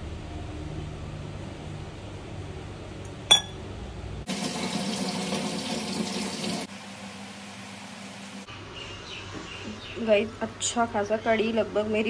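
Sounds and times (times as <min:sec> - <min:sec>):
metal utensil clink: 0:03.3 - 0:03.6
water running from tap: 0:04.3 - 0:06.7.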